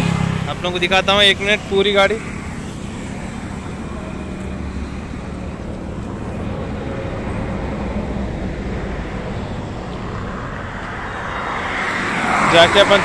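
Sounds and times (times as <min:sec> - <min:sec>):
roadside traffic rumble: 0:00.0 - 0:13.0.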